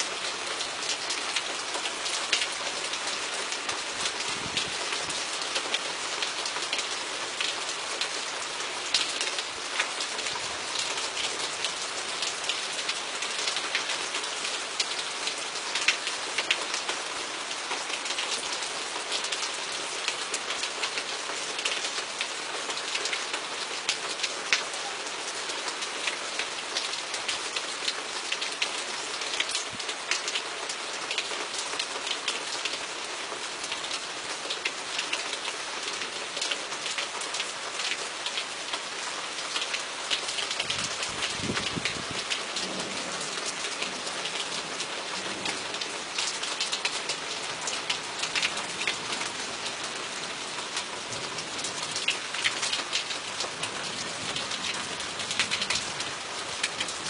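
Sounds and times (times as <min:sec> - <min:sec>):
steady rain: 0:00.0 - 0:57.0.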